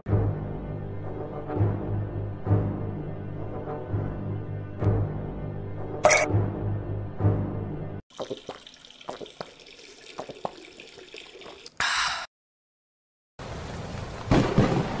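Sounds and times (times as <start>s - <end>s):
water drips: 8.1s - 11.8s
steady rain: 13.4s - 15.0s.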